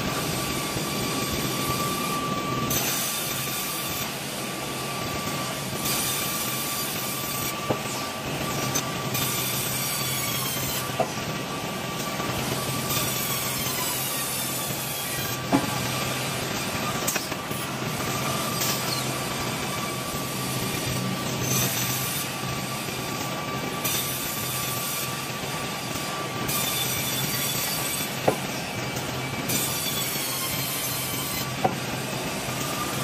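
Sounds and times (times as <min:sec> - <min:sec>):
band saw whine: 0:00.0 - 0:33.0.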